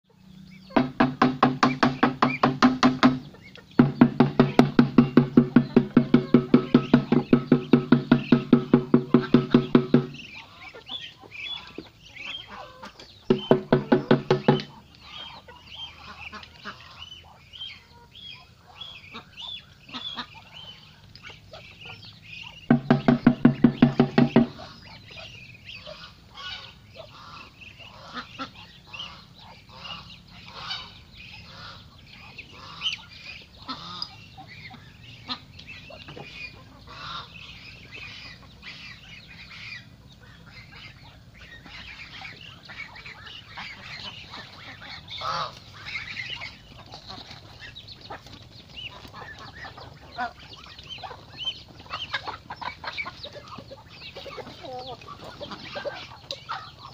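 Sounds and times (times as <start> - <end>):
ducks quacking: 0.1 - 56.9
geese honking: 0.1 - 56.9
plastic container banging: 0.8 - 10.3, 13.3 - 14.8, 22.7 - 24.6.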